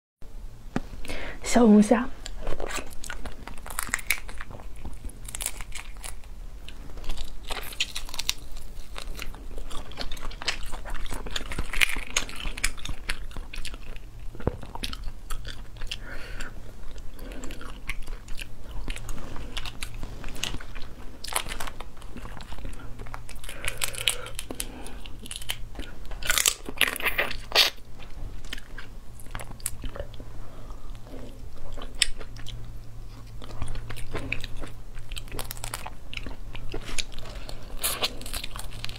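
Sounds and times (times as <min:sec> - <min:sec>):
biting and chewing: 0:02.2 - 0:38.9
shells cracking and snapping: 0:02.3 - 0:13.8.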